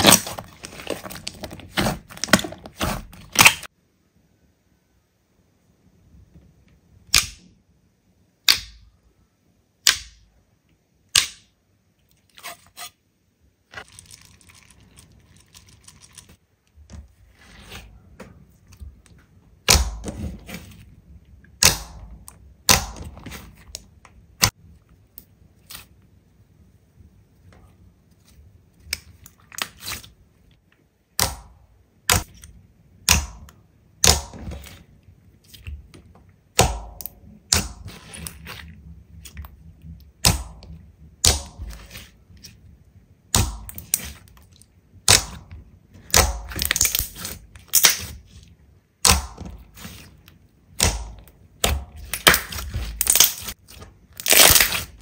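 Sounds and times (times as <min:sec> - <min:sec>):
slime fine crackling: 0:00.0 - 0:03.7, 0:50.8 - 0:55.0.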